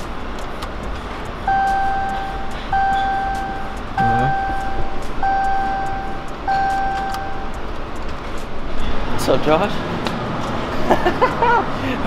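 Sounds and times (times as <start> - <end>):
car warning chime: 1.5 - 7.7.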